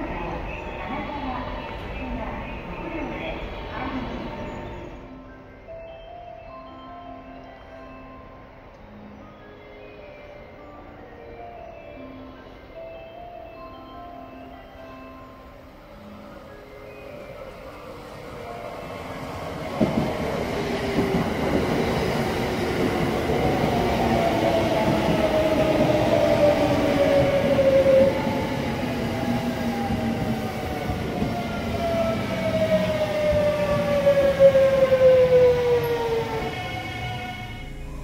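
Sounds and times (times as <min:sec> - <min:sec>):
train wheels rolling on rail: 0:16.3 - 0:38.0.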